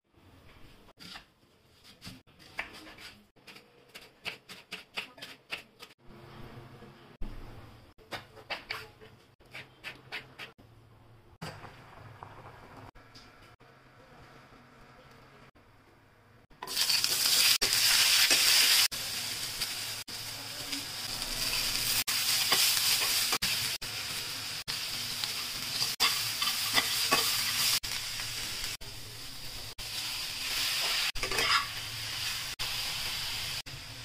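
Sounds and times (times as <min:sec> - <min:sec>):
vegetables sizzling in oil: 0:16.6 - 0:34.0
steel spatula scraping: 0:25.6 - 0:27.8, 0:30.5 - 0:31.9.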